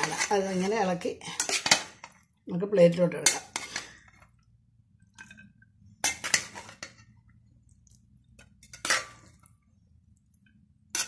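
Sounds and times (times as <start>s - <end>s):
metal spoon scraping a pot: 0.0s - 2.2s, 3.2s - 4.3s, 5.1s - 7.2s, 8.4s - 9.5s.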